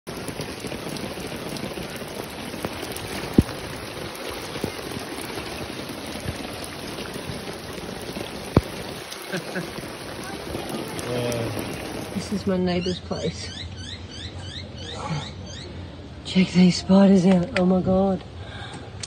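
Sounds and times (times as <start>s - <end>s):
heavy rain: 0.0s - 13.0s
rushing floodwater: 0.0s - 13.1s.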